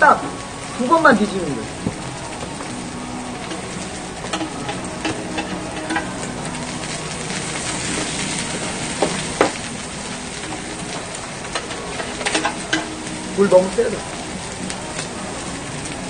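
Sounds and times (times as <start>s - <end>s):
meat sizzling on grill plate: 0.0s - 16.0s.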